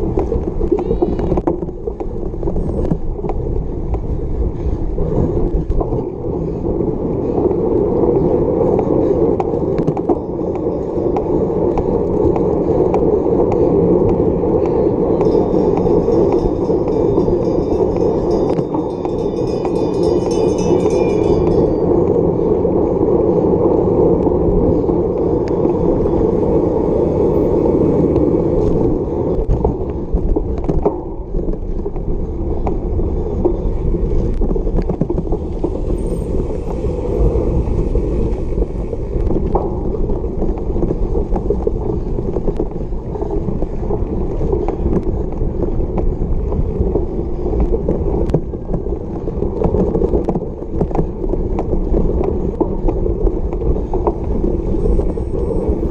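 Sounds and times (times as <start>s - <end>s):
bike tyres humming on pavement: 0.0s - 55.9s
bike frame rattling: 14.7s - 22.1s.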